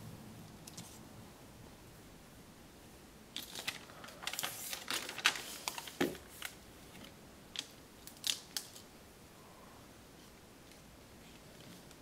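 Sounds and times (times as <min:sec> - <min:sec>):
paper rustling and crackling: 0:03.4 - 0:08.8.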